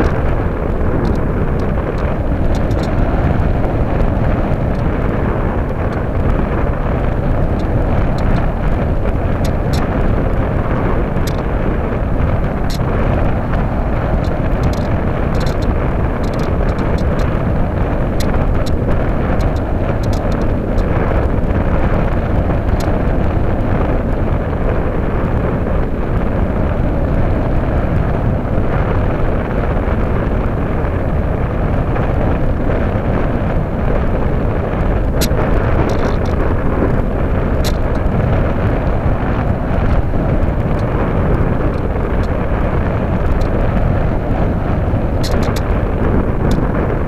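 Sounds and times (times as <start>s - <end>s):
rush of airflow: 0.0s - 47.0s
light ticks: 1.0s - 6.4s, 7.5s - 8.8s, 11.2s - 11.5s, 12.4s - 17.4s, 18.2s - 22.0s, 35.1s - 36.6s, 37.5s - 39.0s, 45.2s - 46.9s.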